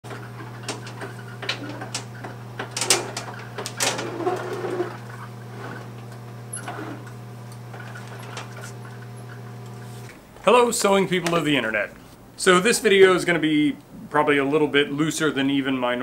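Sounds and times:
heavy table scraping across floor: 0.1 - 10.2.

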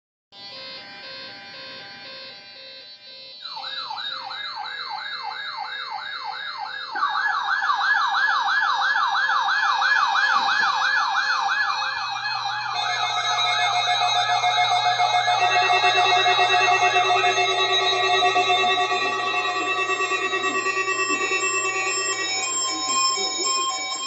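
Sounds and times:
louder sweeping alarm: 0.4 - 24.0
rising sweep alarm: 0.4 - 24.0
steady alarm tone: 0.4 - 24.0.

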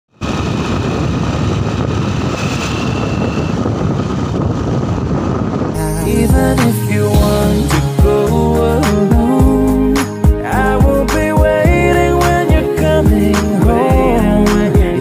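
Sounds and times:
wind rushing over microphone: 0.1 - 15.0
music with a beat: 5.8 - 15.0.

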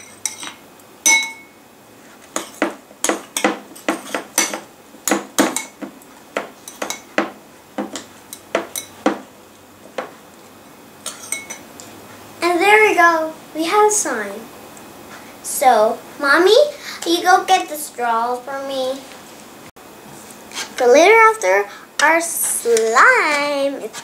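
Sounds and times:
metal spoon clinking ceramic bowl: 0.0 - 1.6, 11.0 - 11.6.

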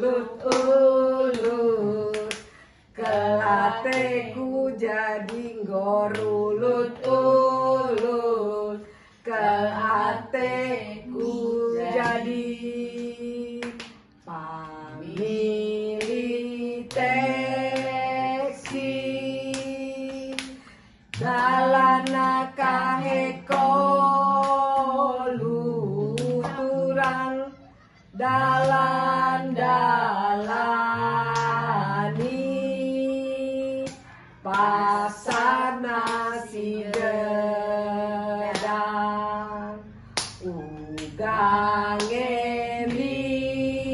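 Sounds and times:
women singing without instruments: 0.0 - 43.9
hand claps: 0.3 - 8.2, 9.8 - 27.5, 28.2 - 32.6, 33.8 - 37.7, 38.4 - 39.4, 40.1 - 43.6.

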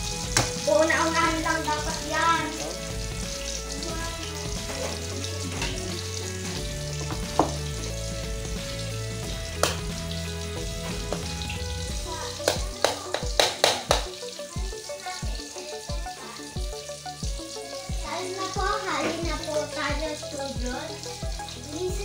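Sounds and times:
background music: 0.0 - 22.0
food sizzling in a pan: 0.0 - 22.0
utensil knocking against pan: 7.0 - 7.6, 9.6 - 9.9, 12.4 - 14.1.

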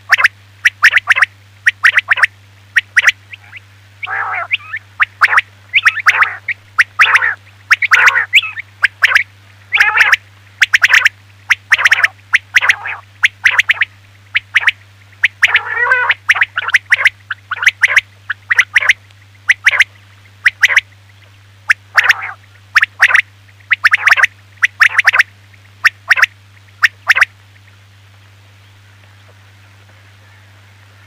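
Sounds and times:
steady low hum: 0.0 - 31.0
quail calling sharp notes: 0.1 - 21.0, 21.7 - 27.3
low grating bird calls: 1.7 - 10.2, 10.8 - 20.8, 21.7 - 25.2.

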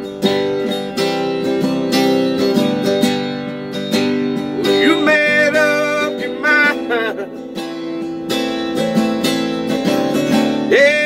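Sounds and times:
acoustic guitar strumming: 0.0 - 11.0
person singing: 4.5 - 7.6, 10.6 - 11.0.

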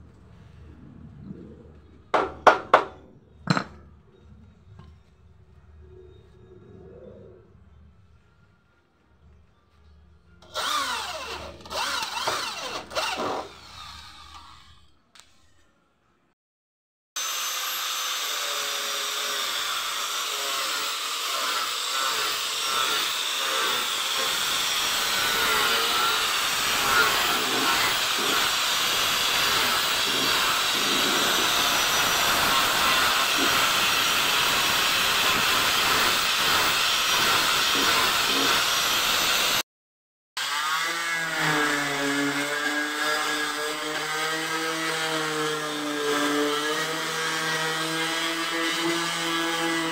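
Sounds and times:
palm sander whirring: 10.4 - 14.8, 17.2 - 39.6, 40.4 - 49.9
angle grinder sanding with high whine: 17.2 - 39.6.

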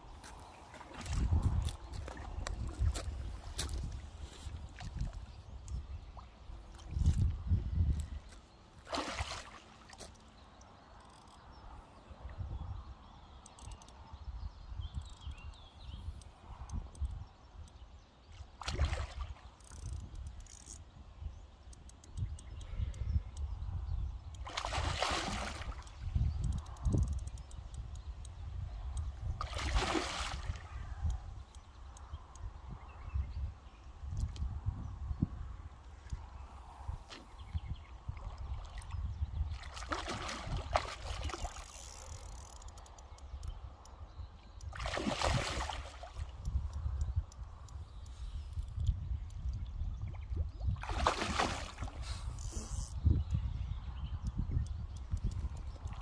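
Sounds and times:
fish splashing at water surface: 8.9 - 9.7, 24.5 - 25.8, 44.8 - 46.2, 50.8 - 52.0.

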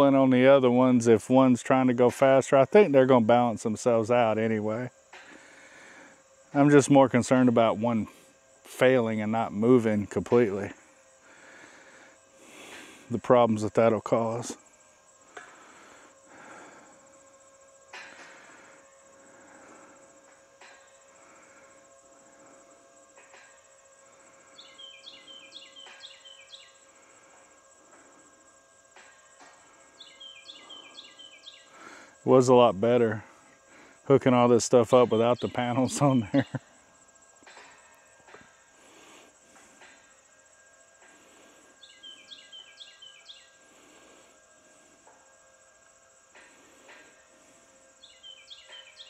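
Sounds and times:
crickets chirping: 0.0 - 49.0
faint steady hum: 0.0 - 49.0
insects trilling: 0.0 - 49.0
songbird whistling: 24.6 - 26.8, 30.0 - 31.7, 41.8 - 43.6, 48.0 - 49.0.

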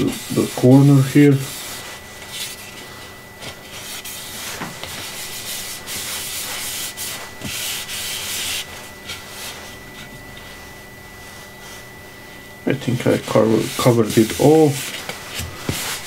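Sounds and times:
applicator scrubbing wood: 0.0 - 9.6, 12.8 - 16.0.

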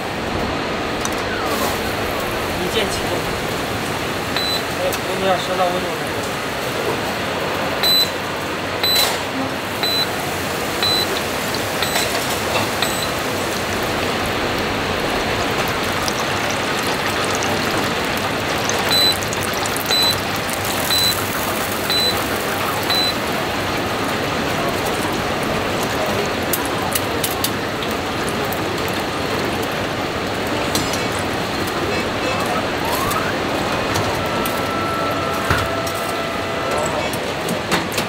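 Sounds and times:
food sizzling in deep fryer: 0.8 - 37.5
fryer beeps: 4.3 - 4.9, 7.8 - 8.2, 8.8 - 13.2, 18.8 - 23.4, 32.2 - 37.0.

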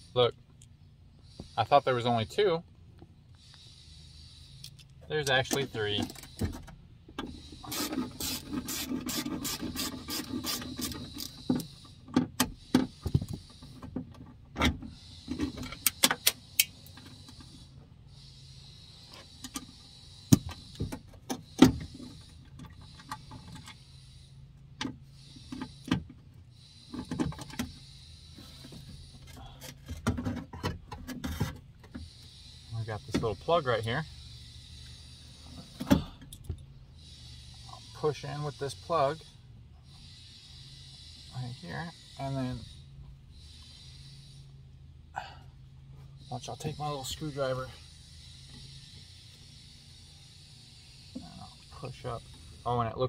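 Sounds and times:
ratchet clicking: 4.4 - 13.7, 39.9 - 44.4.

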